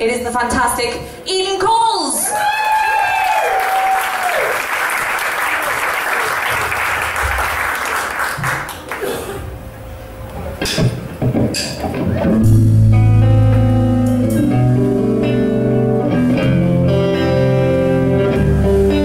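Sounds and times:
audience applauding: 2.4s - 9.6s
sharp knocks: 10.6s - 12.0s.

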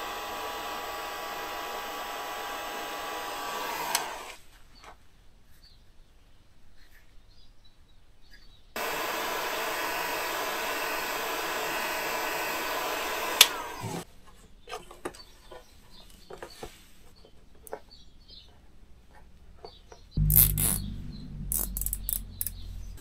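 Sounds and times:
soldering gun humming: 0.0s - 4.4s, 8.8s - 14.0s, 20.2s - 23.0s.

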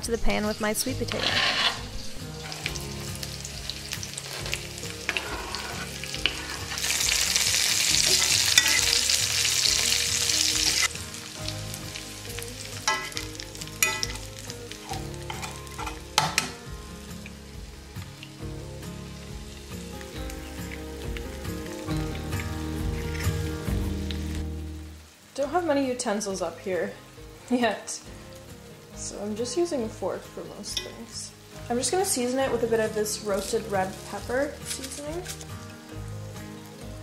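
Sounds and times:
vegetables sizzling in oil: 0.0s - 37.0s
sharp knocks in pan: 15.3s - 16.6s.

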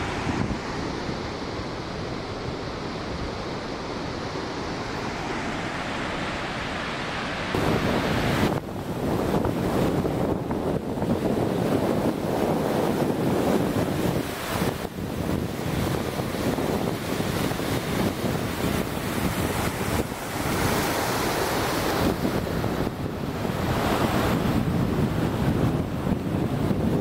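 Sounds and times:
wind buffeting microphone: 0.0s - 3.6s, 7.5s - 27.0s.

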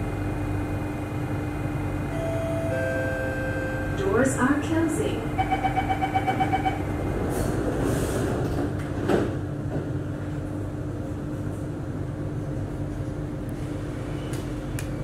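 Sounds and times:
train carriage humming: 0.0s - 15.0s
train sliding doors closing: 7.0s - 10.5s, 13.5s - 15.0s.

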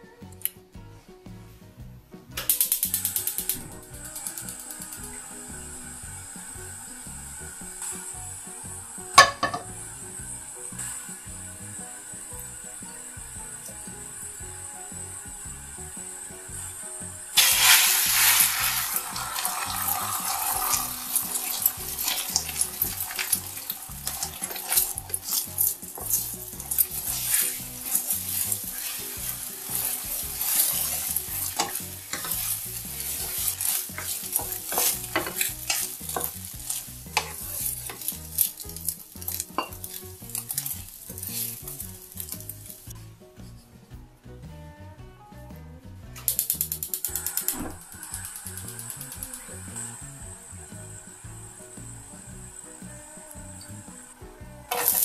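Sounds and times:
eggs sizzling in hot oil: 1.6s - 43.1s, 46.2s - 55.0s
chopsticks tapping and scraping pan: 9.1s - 16.6s, 17.3s - 43.0s, 50.8s - 55.0s.

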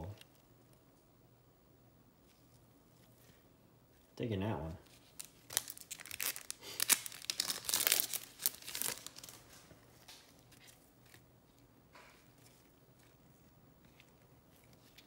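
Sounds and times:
cards rustling: 4.8s - 15.0s
foil wrapper tearing and crinkling: 5.0s - 9.6s.

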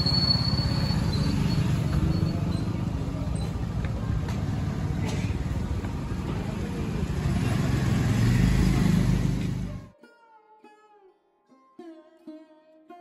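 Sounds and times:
street traffic: 0.0s - 9.9s
vehicle engine rumble passing: 0.0s - 9.9s
faint plucked string music: 9.7s - 13.0s.

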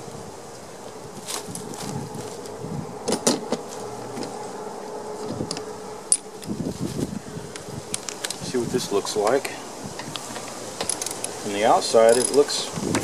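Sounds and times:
high buzzing drone: 0.0s - 12.1s
hand tools clicking: 7.5s - 8.5s, 10.0s - 13.0s.

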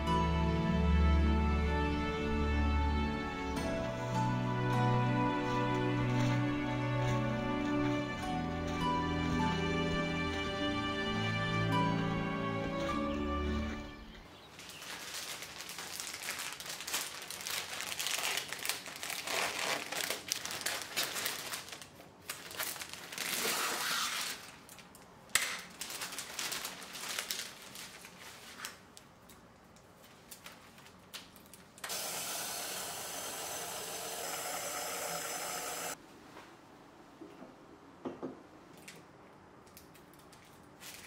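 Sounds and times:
wrapping paper rustling: 14.3s - 29.2s, 29.8s - 31.8s, 40.3s - 41.0s.

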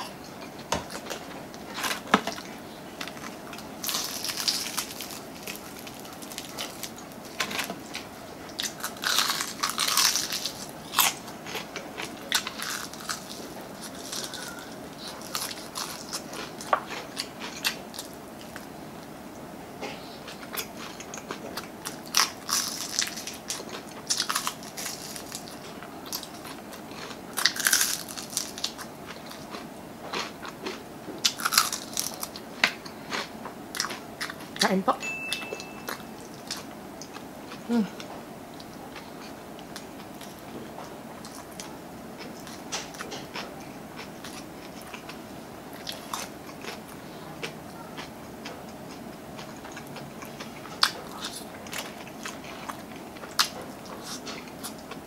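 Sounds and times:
quiet chewing: 0.0s - 18.7s, 35.6s - 55.0s
crunching fried chicken: 0.9s - 18.7s, 20.2s - 34.7s, 41.2s - 55.0s.

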